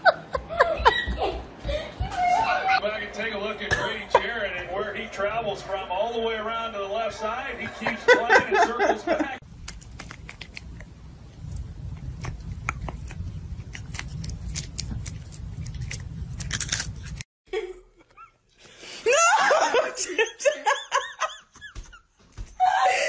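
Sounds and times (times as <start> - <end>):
person laughing: 0.0 - 2.0, 7.6 - 9.4.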